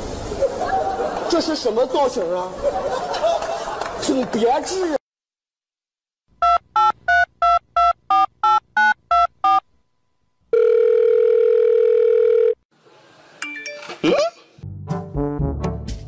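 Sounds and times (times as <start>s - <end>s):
telephone keypad beeps: 6.4s - 9.6s
telephone ringback tone: 6.4s - 9.6s, 10.5s - 12.6s.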